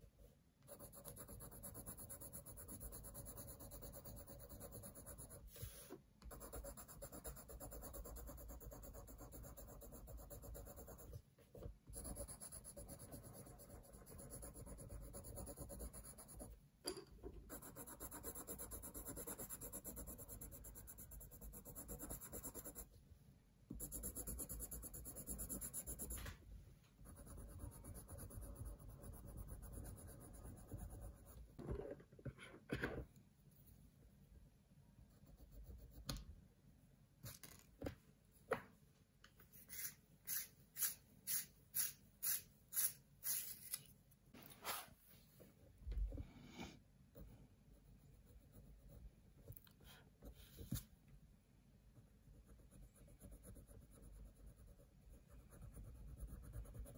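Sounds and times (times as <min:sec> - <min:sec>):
pencil scratching on paper: 0:00.6 - 0:11.2, 0:11.9 - 0:16.6, 0:17.5 - 0:22.9, 0:23.7 - 0:26.3, 0:27.0 - 0:31.5, 0:46.5 - 0:50.8, 0:52.2 - 0:56.9.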